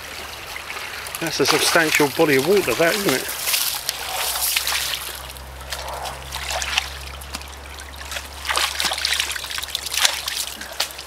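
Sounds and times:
muddy water trickling and sloshing: 0.0 - 11.0
splashes of wading in boots: 0.0 - 11.0.

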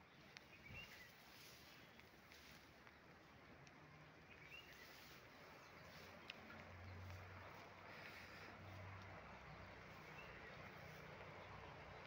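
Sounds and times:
faint outdoor ambience: 0.0 - 12.0.

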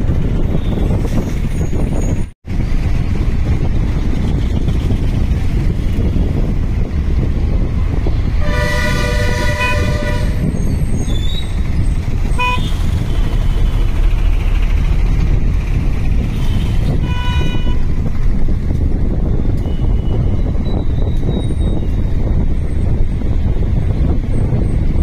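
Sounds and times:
bus engine and road rumble: 0.0 - 25.0
vehicle horns honking: 8.4 - 10.5, 12.3 - 13.9, 16.3 - 18.0.

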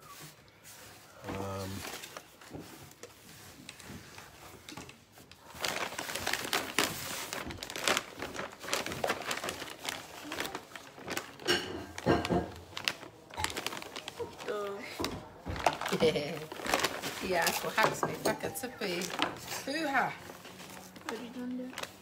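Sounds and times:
plastic bottle crinkling: 1.6 - 22.0.

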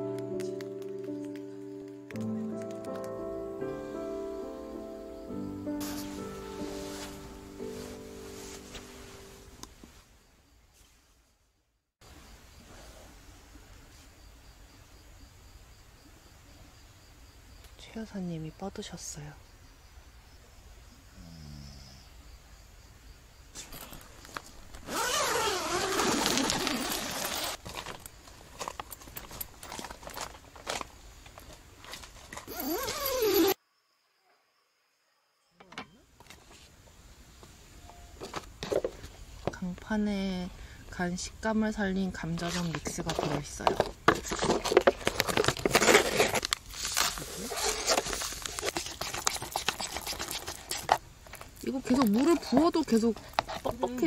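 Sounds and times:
rustles and taps: 0.1 - 3.2
tent zipper pulled open: 5.8 - 9.1, 23.6 - 27.9, 31.9 - 33.6, 44.6 - 51.4
foil lid crinkling and tearing: 24.8 - 32.4, 42.4 - 52.6.

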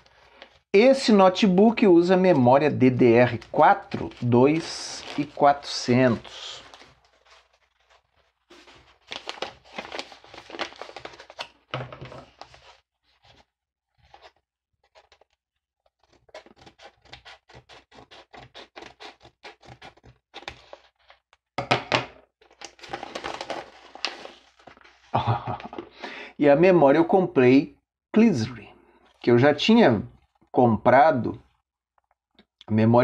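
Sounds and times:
paper envelope crinkling: 3.0 - 21.2, 22.4 - 25.8
paper tearing: 15.9 - 20.7.

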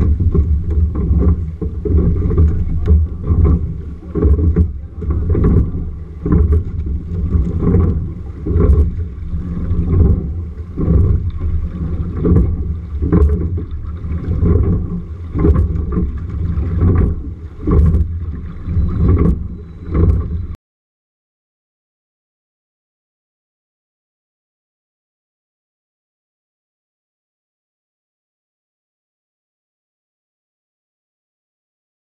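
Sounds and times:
oars knocking and splashing: 0.0 - 20.6
wind and water rumble: 0.0 - 20.6.

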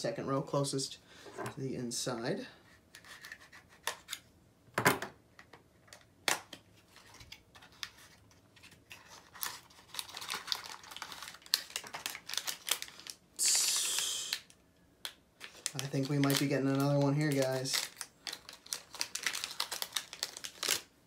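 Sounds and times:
packaging crinkling and tearing: 6.8 - 13.2, 13.8 - 21.0.

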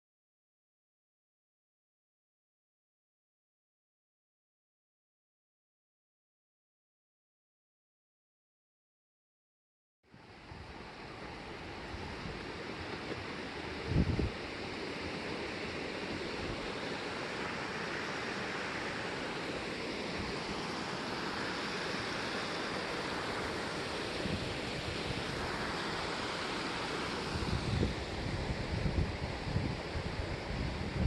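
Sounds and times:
creek rushing over boulders: 10.1 - 31.0.

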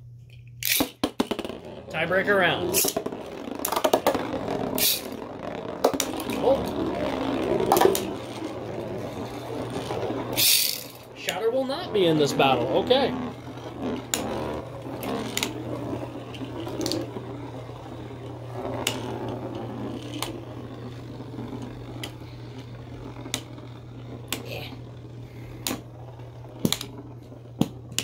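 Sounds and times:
spinning tops clicking together: 0.6 - 1.0, 2.7 - 8.2, 9.6 - 11.1
spinning tops whirring: 0.6 - 28.0.

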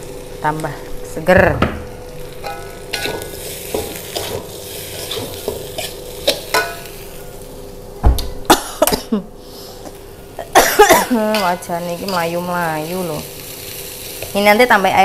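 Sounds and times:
food sizzling: 0.0 - 15.0
metal spatula scraping a wok: 2.4 - 7.0
thump and clanks: 8.0 - 8.4.

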